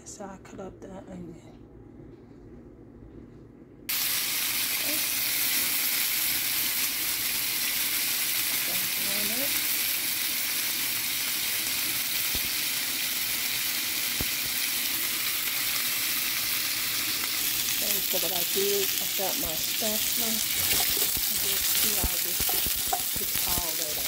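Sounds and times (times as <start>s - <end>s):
vegetables sizzling in oil: 3.9s - 24.0s.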